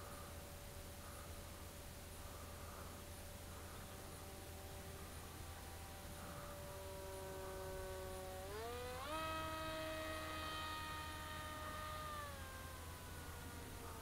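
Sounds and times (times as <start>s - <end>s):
faint electric motor whine: 0.0s - 14.0s
steady low hum: 0.0s - 14.0s.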